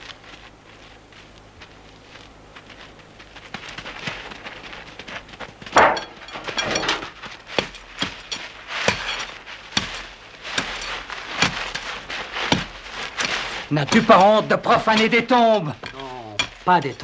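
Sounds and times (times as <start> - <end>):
scuffling: 0.0 - 17.0.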